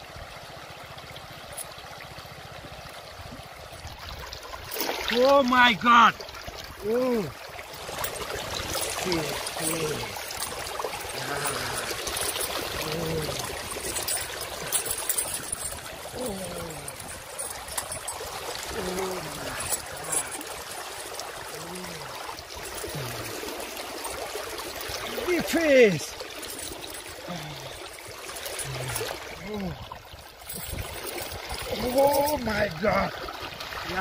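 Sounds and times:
stream water splashing: 0.0s - 34.0s
short wordless voice sounds: 6.8s - 7.4s, 9.0s - 10.2s, 11.2s - 12.0s, 12.8s - 13.6s, 16.1s - 17.1s, 18.7s - 20.4s, 21.6s - 22.2s, 25.1s - 26.2s, 28.6s - 29.9s
metal chain clinking: 7.8s - 29.3s, 30.4s - 32.6s.

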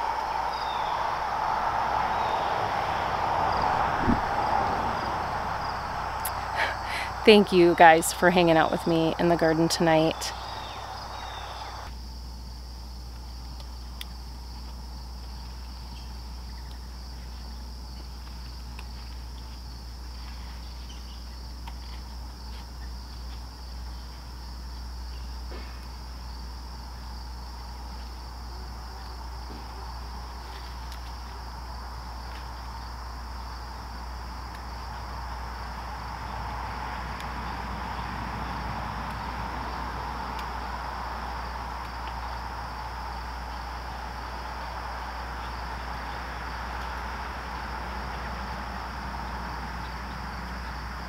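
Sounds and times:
broad rushing noise: 0.0s - 9.1s
low rumble: 0.0s - 9.3s
crickets and insects trilling: 0.0s - 51.0s.

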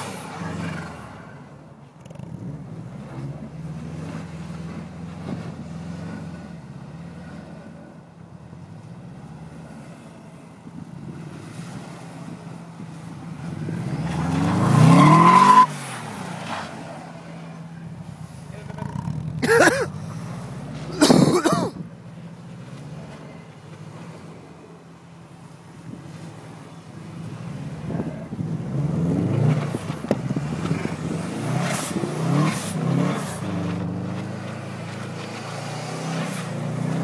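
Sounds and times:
car engine revving: 0.0s - 37.0s.

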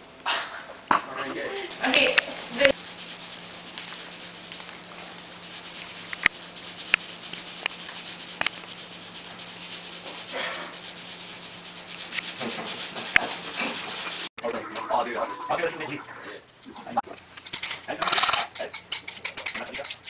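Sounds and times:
salt hissing into steel bowl: 1.7s - 14.8s.

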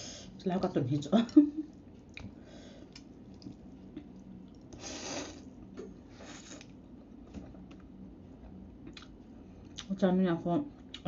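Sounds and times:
soft clicks and eating noises: 0.5s - 4.8s, 6.6s - 10.0s.

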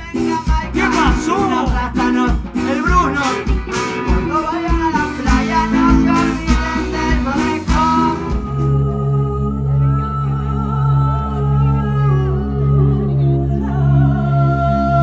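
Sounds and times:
drums beating: 0.0s - 8.6s
trumpet: 0.0s - 8.8s
electric guitar: 0.0s - 15.0s
person singing: 0.0s - 15.0s
trombone: 0.2s - 8.7s.

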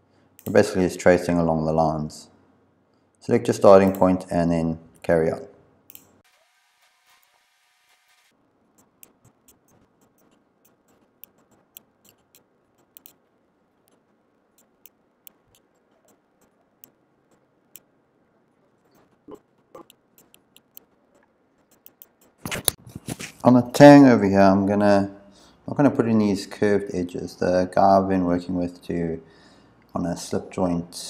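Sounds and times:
faint room hiss: 0.0s - 31.0s
computer mouse clicking: 5.9s - 6.2s, 8.8s - 13.2s, 14.6s - 17.9s, 19.8s - 22.8s.

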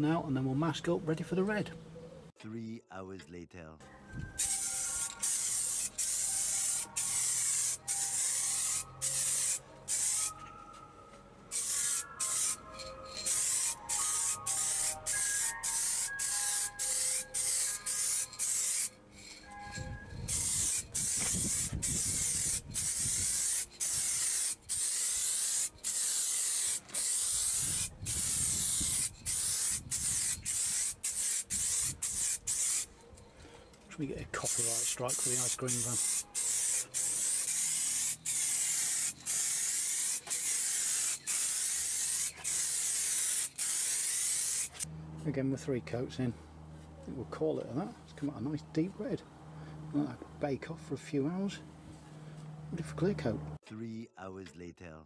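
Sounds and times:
ice cream van chime tune: 3.8s - 5.2s, 7.8s - 18.4s, 19.0s - 20.4s
aerosol spray can hissing: 4.4s - 10.4s, 11.5s - 19.0s, 20.3s - 32.9s, 34.5s - 44.9s.

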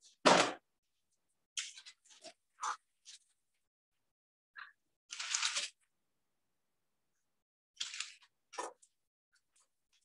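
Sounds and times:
parchment paper crinkling: 5.1s - 5.9s, 7.8s - 10.0s.

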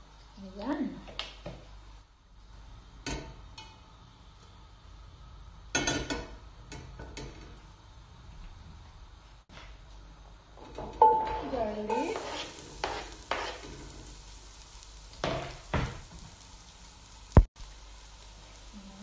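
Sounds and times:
garlic sizzling in oil: 0.4s - 8.3s, 10.5s - 19.0s
scrapes and knocks: 10.6s - 13.8s.

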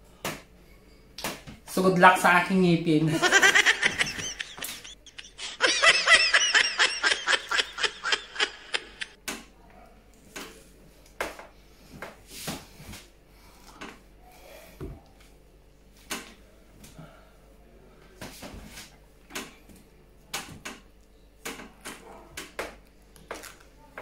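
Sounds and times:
man laughing: 3.1s - 9.1s.

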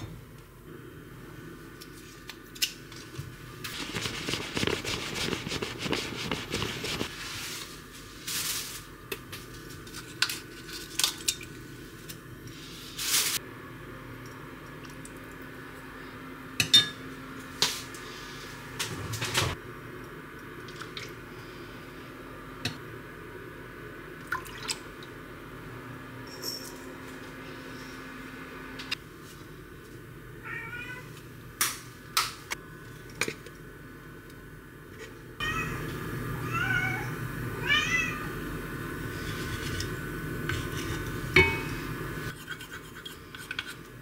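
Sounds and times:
spoon and bottles clinking on pot: 41.4s - 41.8s.

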